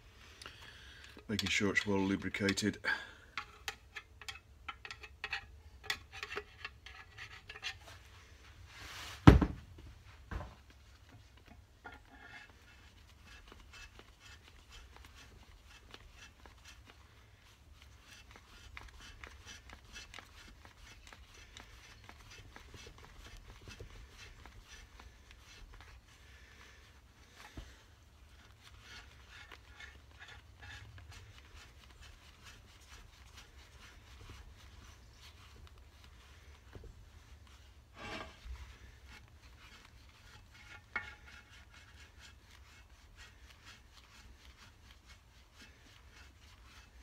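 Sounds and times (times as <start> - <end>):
hand reamer scraping metal: 0.5 - 8.4, 11.0 - 47.0
knock on workbench: 9.2 - 9.6.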